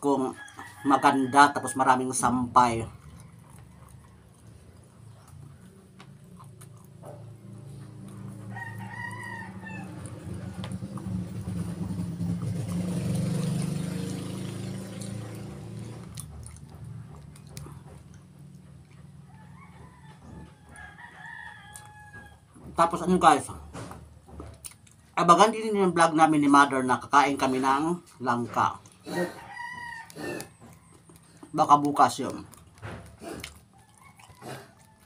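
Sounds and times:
rooster crowing: 0.2s - 2.4s, 8.1s - 10.8s, 19.2s - 22.5s, 29.0s - 31.4s, 33.7s - 35.0s.

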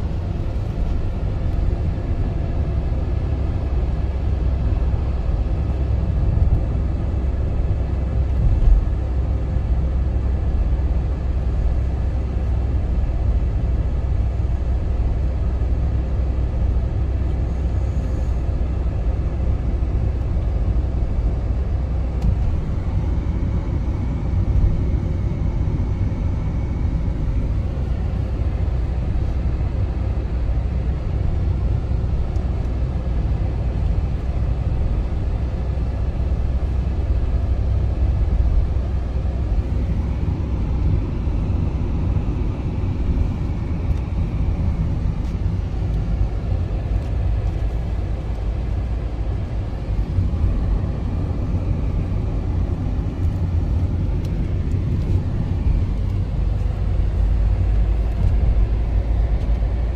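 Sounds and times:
car interior road rumble: 0.0s - 59.9s.

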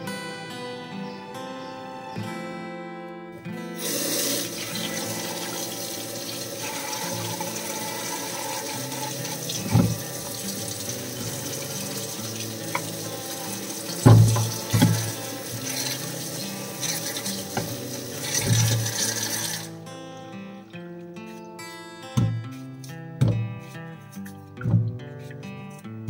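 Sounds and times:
tap water running into sink: 3.8s - 19.7s
dull thumps: 9.6s - 10.2s, 14.0s - 15.2s, 22.2s - 22.5s, 23.2s - 23.6s, 24.6s - 25.1s.

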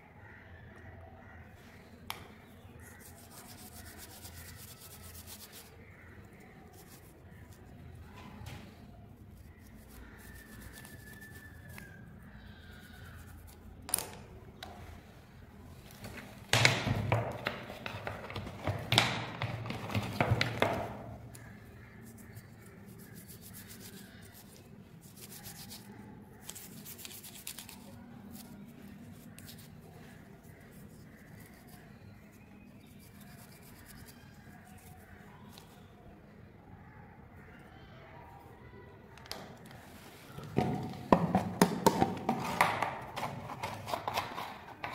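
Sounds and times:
toothbrush scrubbing metal: 2.9s - 5.9s, 9.4s - 12.0s, 21.4s - 29.7s, 32.8s - 35.1s.

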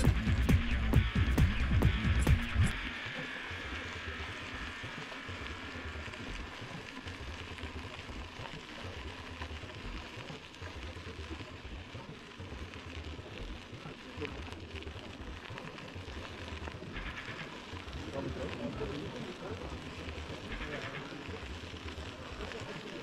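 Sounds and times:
bicycle rolling noise: 0.0s - 23.0s.

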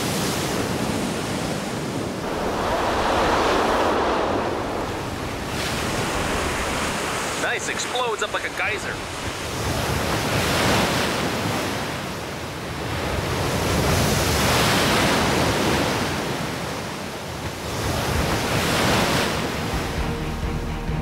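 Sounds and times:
surf rushing through rock channel: 2.0s - 10.4s.

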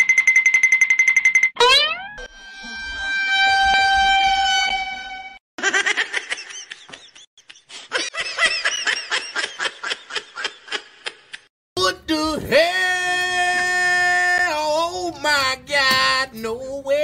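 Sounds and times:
high horn-like tone: 1.6s - 5.4s.

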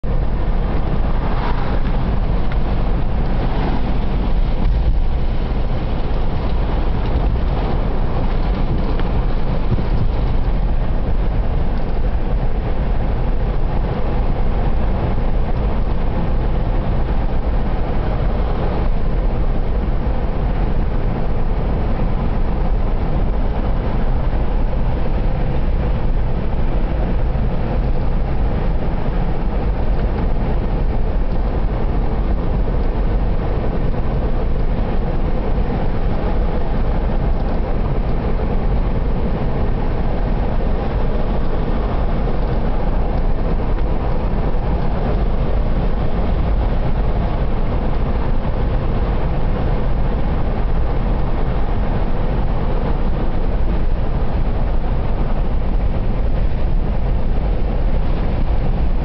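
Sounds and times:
car interior road rumble: 0.0s - 59.0s.

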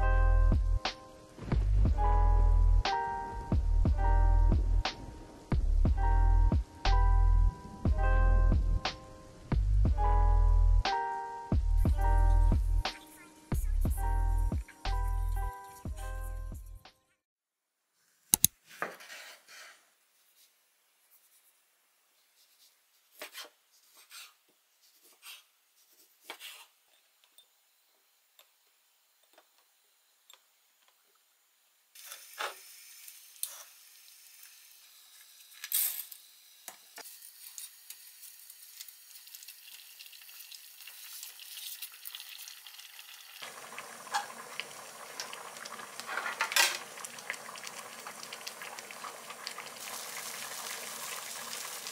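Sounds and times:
steady hiss: 4.9s - 5.8s, 8.8s - 9.6s, 25.2s - 42.6s
pot boiling and bubbling: 36.4s - 51.9s.

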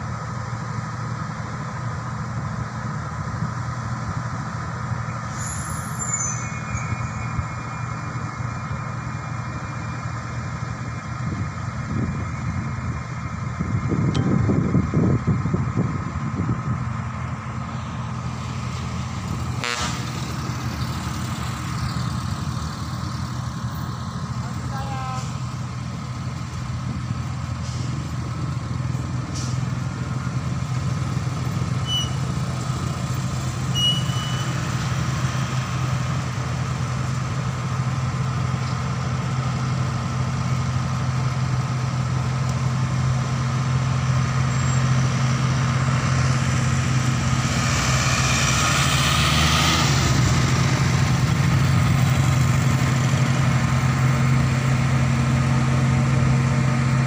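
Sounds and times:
truck diesel engine under load: 0.0s - 57.0s
vehicle passing close by: 45.3s - 57.0s.

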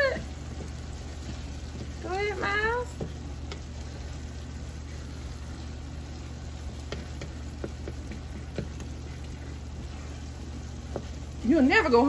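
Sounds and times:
low steady hum: 0.0s - 12.0s
sauce bubbling in skillet: 0.0s - 12.0s
spatula clicking against pan: 6.8s - 9.4s.

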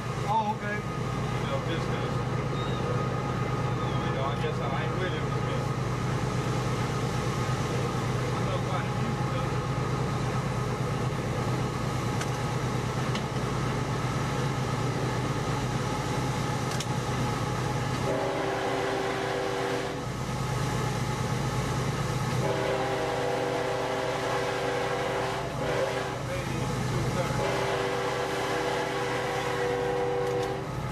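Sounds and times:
diesel locomotive rumble: 0.0s - 30.9s
multi-note air horn: 18.1s - 20.0s, 22.4s - 26.2s, 27.4s - 30.6s.

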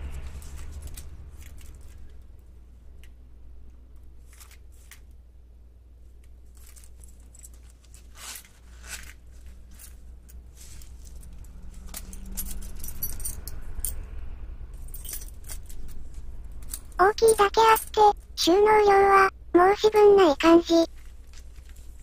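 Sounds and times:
keys clinking and rattling: 6.4s - 14.0s, 14.7s - 18.0s.

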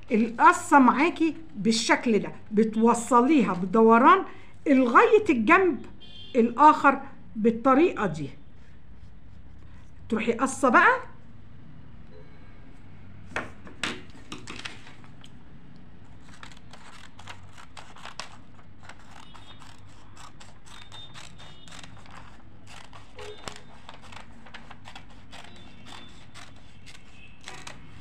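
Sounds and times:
paper rustling: 14.0s - 15.3s, 16.1s - 28.0s
scissors cutting paper: 16.2s - 28.0s.

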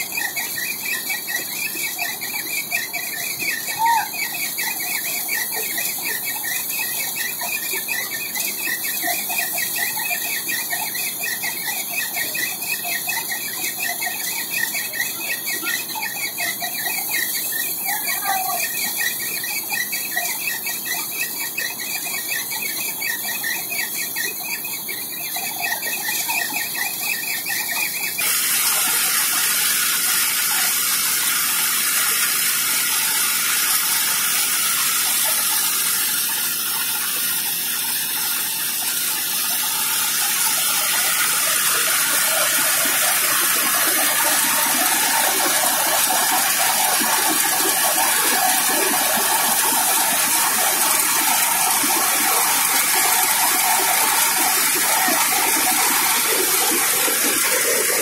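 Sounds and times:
pulsing high squeal: 0.0s - 58.0s
thresher machine rushing noise: 27.2s - 58.0s.

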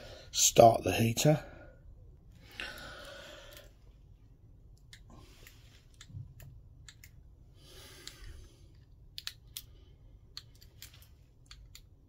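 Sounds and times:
low steady hum: 0.0s - 12.0s
sharp clicks: 9.1s - 12.0s.

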